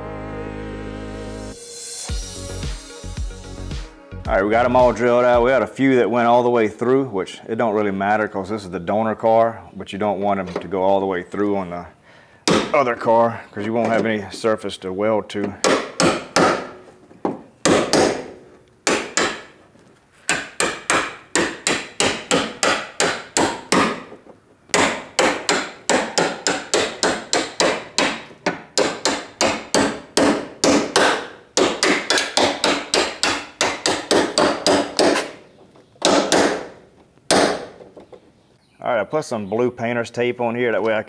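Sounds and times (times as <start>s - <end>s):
hammer striking chisel on metal: 17.6s - 19.5s, 20.3s - 24.1s, 24.7s - 35.4s.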